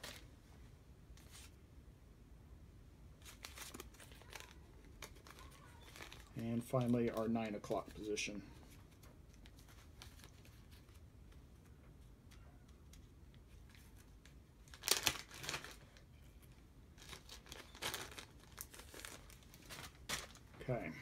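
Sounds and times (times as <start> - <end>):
plastic bag crinkling: 3.2 - 11.1, 12.9 - 20.6.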